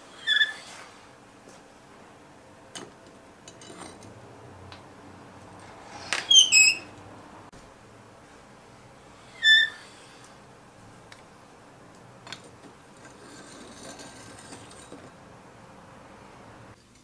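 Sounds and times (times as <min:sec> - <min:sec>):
steel door squeaking shut: 0:06.0 - 0:07.0.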